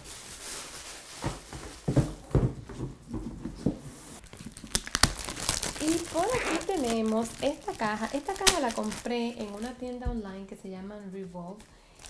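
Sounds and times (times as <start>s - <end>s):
tissue paper and plastic rustling: 0.0s - 10.2s
dull knocks: 1.3s - 3.8s.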